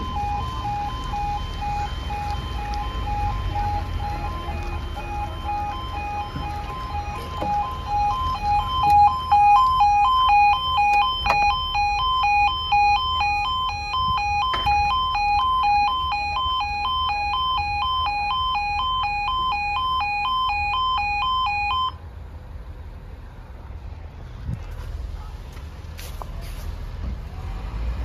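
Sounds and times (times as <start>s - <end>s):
level crossing two-tone alarm: 0.0s - 22.0s.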